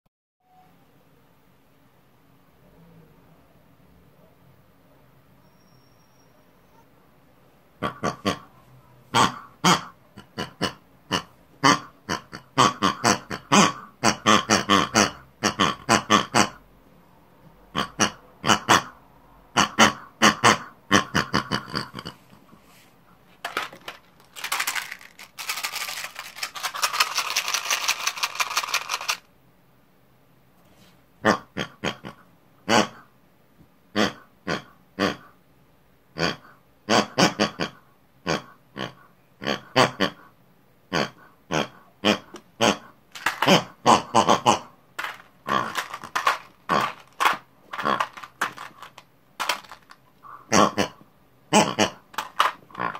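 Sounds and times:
person making pig-like calls: 7.8 - 16.6, 17.7 - 22.4, 23.5 - 29.2, 31.2 - 33.1, 33.9 - 35.4, 36.2 - 40.3, 40.9 - 52.9
rasping vocal noise: 42.0 - 52.9.

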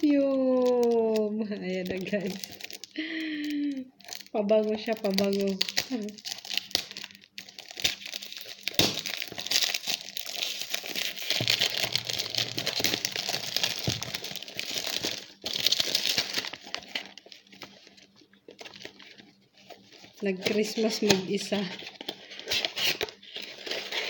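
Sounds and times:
plastic film crackling: 0.0 - 24.0
box handling: 8.0 - 17.7.

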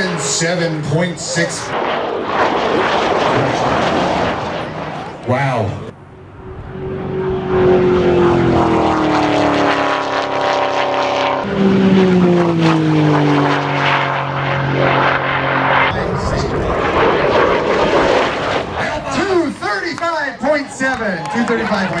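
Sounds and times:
sports car engines at full throttle: 2.8 - 19.0.

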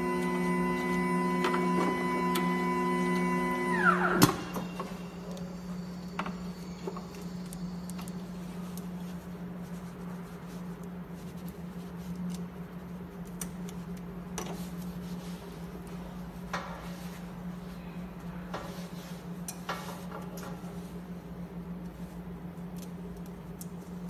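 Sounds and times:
machine humming: 0.0 - 8.9.

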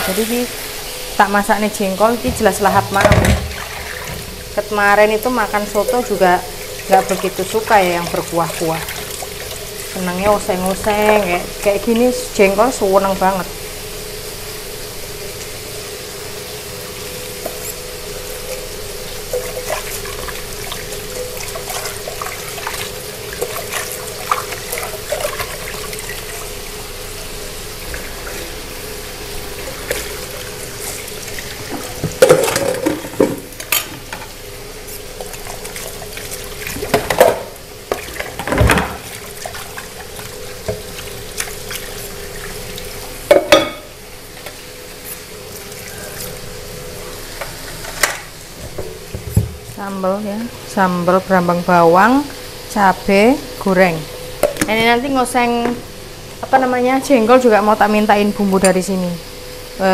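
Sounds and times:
tap water running into sink: 2.0 - 12.6, 18.4 - 26.7, 29.4 - 34.4, 35.1 - 44.7, 47.3 - 49.8
metal bowl clattering against sink: 2.3 - 4.2, 31.7 - 34.1, 43.3 - 43.9.

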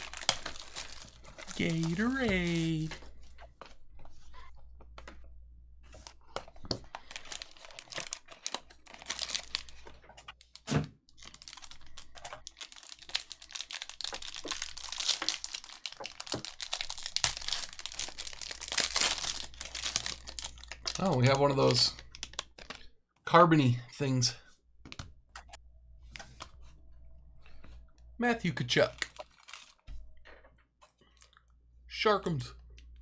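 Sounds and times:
wrappers crinkling and tearing: 0.0 - 3.2, 6.1 - 22.9, 28.7 - 29.8.

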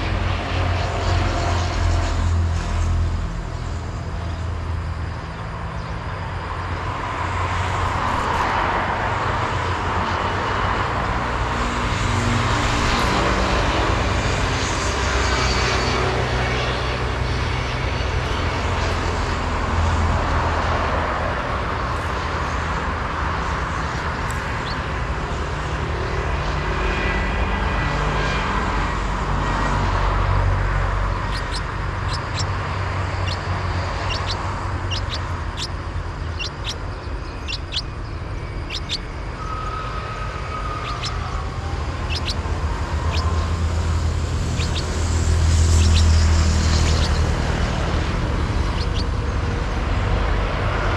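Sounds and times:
nestling begging chirps: 23.8 - 25.7, 31.1 - 49.4.

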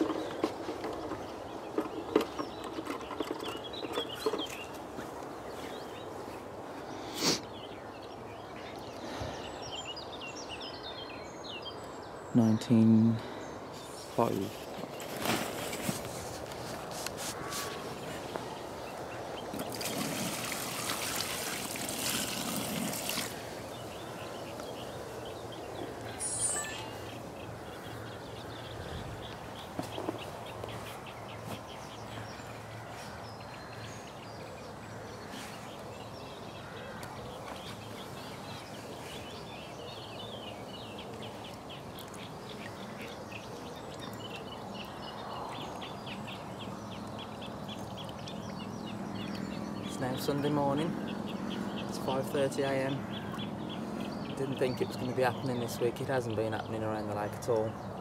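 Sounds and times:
faint bird calls: 1.8 - 56.4
water splashing from bucket: 19.5 - 23.5.

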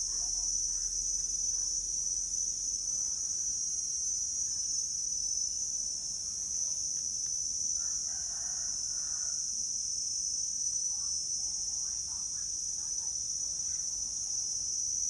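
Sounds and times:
rooster crowing: 7.8 - 9.5.

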